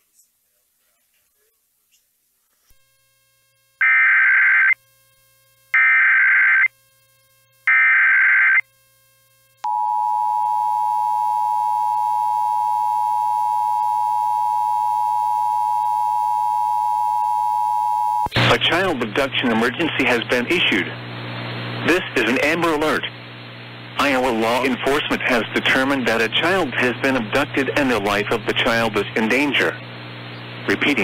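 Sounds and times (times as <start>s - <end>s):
modem-like data tone bursts: 3.8s - 4.8s, 5.7s - 6.8s, 7.7s - 8.7s, 9.6s - 18.3s
steady warning alarm tone: 3.8s - 4.8s, 5.7s - 6.8s, 7.7s - 8.7s, 9.6s - 18.3s.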